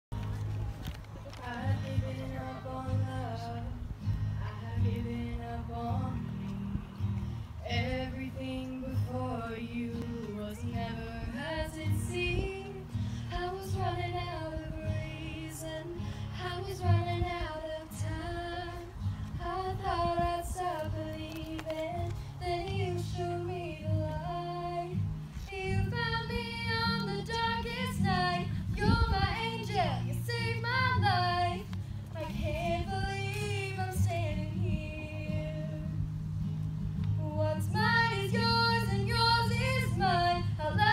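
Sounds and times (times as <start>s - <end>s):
woman singing: 1.4s - 6.8s, 7.6s - 36.0s, 37.2s - 40.9s.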